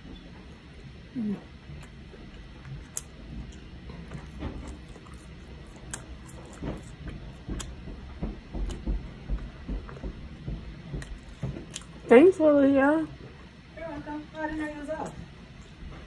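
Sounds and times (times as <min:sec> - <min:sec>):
soft low thumps: 0:00.0 - 0:16.0
person chewing food: 0:00.4 - 0:12.1, 0:15.0 - 0:16.0.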